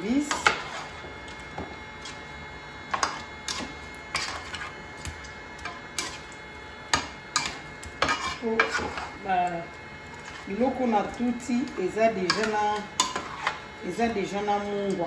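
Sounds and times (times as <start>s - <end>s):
spatula scraping saucepan: 0.0s - 1.1s, 1.9s - 4.9s, 5.6s - 9.3s, 10.1s - 11.1s, 12.0s - 15.0s.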